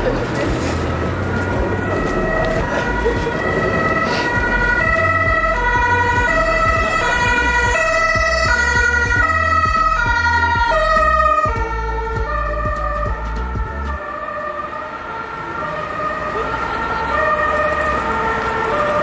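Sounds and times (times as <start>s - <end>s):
upbeat electronic music: 0.0s - 14.5s.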